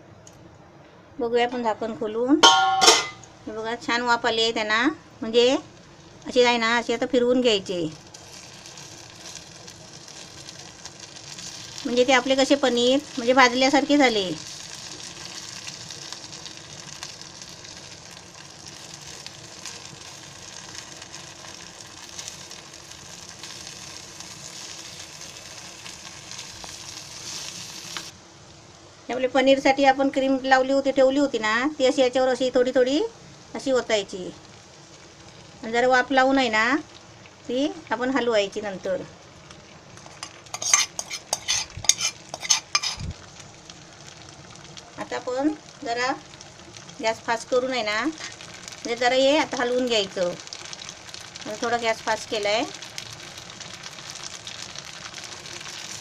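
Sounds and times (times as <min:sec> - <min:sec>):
food sizzling in a pan: 0:02.4 - 0:56.0
spoon scraping a pan: 0:40.0 - 0:43.1.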